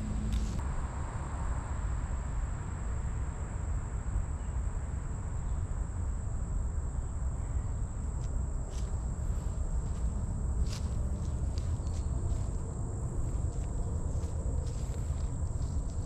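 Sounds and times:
insects chirping: 0:00.0 - 0:16.0
low rumbling noise: 0:07.2 - 0:16.0.

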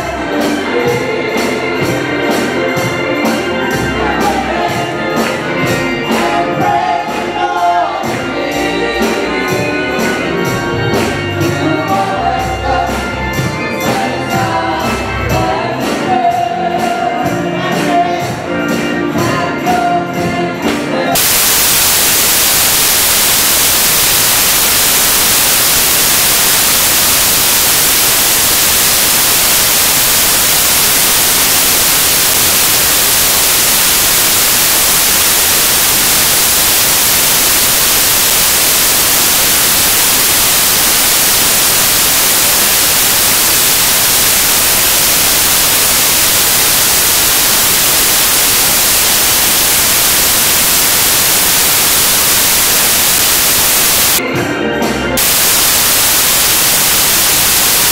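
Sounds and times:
static hiss: 0:21.2 - 0:54.2, 0:55.1 - 0:57.9.

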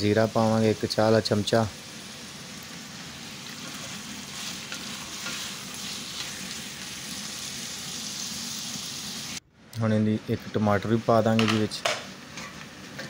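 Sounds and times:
chicken frying in a pot: 0:00.0 - 0:09.4.

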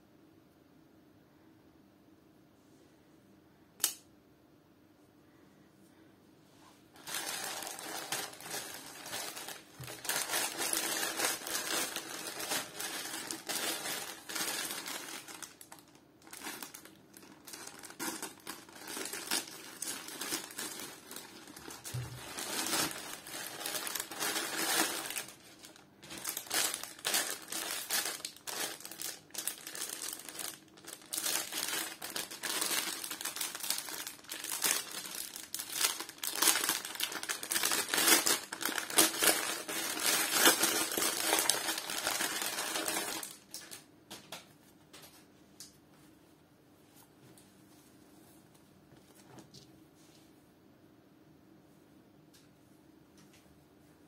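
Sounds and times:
plastic bags crinkling and rustling: 0:06.9 - 0:44.3.

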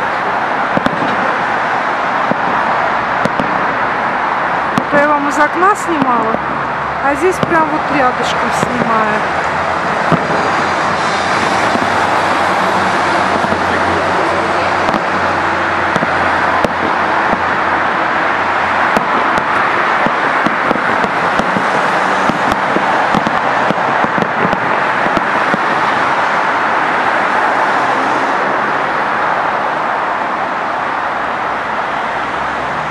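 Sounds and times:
bus engine hum: 0:00.0 - 0:32.9
cars passing: 0:00.0 - 0:32.9
distant fireworks popping: 0:00.7 - 0:01.4, 0:02.2 - 0:03.8, 0:04.7 - 0:06.6, 0:07.2 - 0:26.2.

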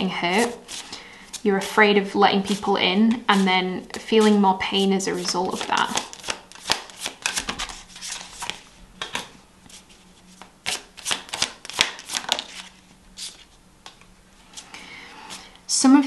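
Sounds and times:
cards being shuffled: 0:05.2 - 0:14.7.

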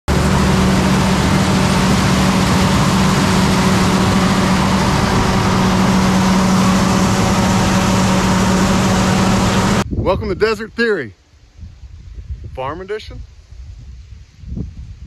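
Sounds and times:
combine harvester running: 0:00.0 - 0:09.8
steady rushing noise: 0:00.0 - 0:09.9.

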